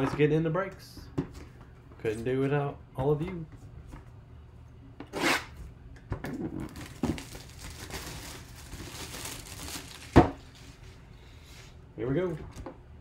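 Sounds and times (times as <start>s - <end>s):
plastic wrap crinkling and tearing: 6.6s - 10.9s.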